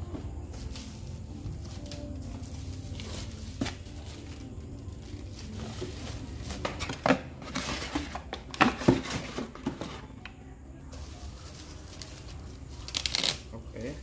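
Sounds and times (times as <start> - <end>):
plastic bags crinkling: 0.6 - 8.2, 10.9 - 14.0.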